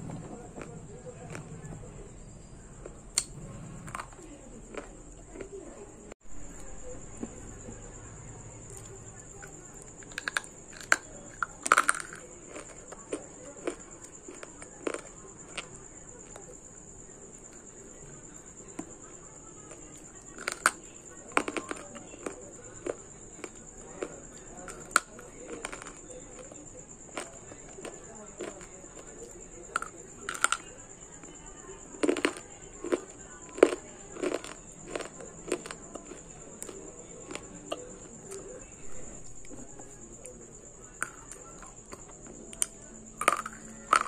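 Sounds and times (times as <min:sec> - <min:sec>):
crisp mouth crunches: 0:08.7 - 0:15.7, 0:29.8 - 0:30.6, 0:32.0 - 0:38.5, 0:40.9 - 0:44.0
dry clay being bitten: 0:08.7 - 0:15.7, 0:27.1 - 0:30.7, 0:32.0 - 0:38.5.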